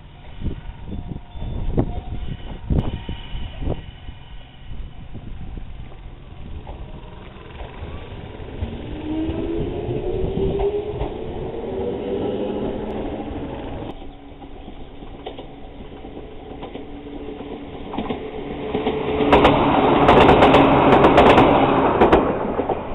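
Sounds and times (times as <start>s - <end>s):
electric train motor whine: 0.0s - 20.5s
train wheels clattering over rail joints: 10.4s - 22.9s.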